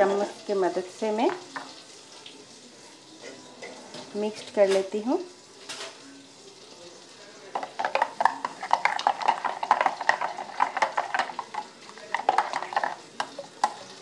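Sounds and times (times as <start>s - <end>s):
spoon clinking in metal jar: 7.6s - 13.8s.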